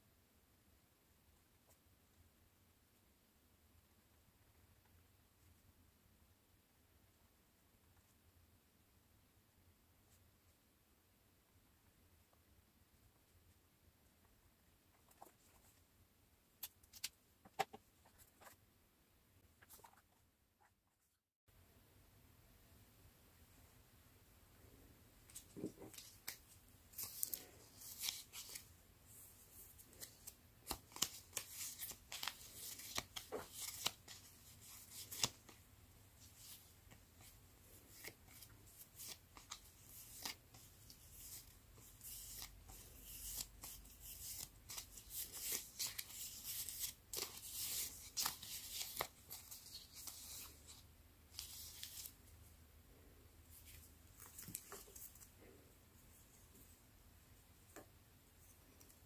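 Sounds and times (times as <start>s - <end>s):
paper stickers rustling: 25.3s - 28.7s, 29.6s - 35.6s, 36.2s - 50.8s.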